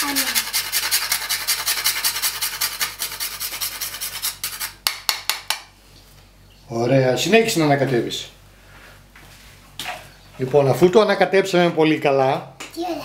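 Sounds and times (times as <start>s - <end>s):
nutmeg grated on metal grater: 0.0s - 4.7s.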